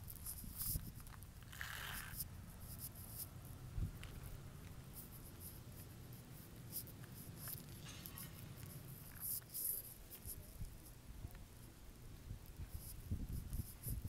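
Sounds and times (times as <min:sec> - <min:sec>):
wind rumble on microphone: 0:03.6 - 0:04.6, 0:12.0 - 0:14.0.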